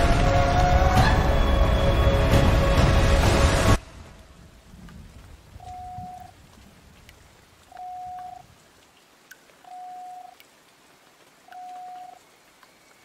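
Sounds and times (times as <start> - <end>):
faint ticks: 5.6 - 13.0.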